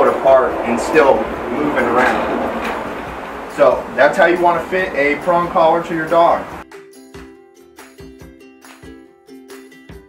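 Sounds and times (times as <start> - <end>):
light plucked tune with steady beat: 6.6 - 10.0.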